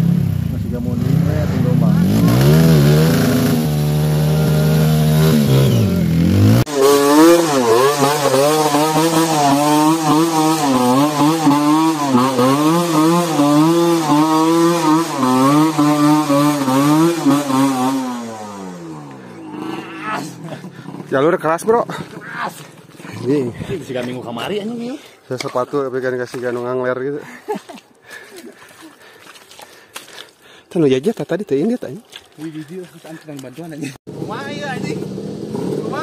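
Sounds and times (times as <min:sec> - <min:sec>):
dirt bike engine revving: 0:00.0 - 0:22.0, 0:34.1 - 0:36.0.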